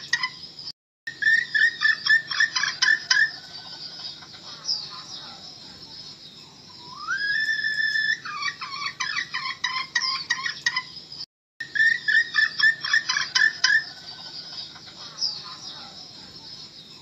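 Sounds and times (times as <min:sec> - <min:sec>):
hen clucking rapidly: 0:01.2 - 0:05.4, 0:08.1 - 0:10.9, 0:11.8 - 0:16.0.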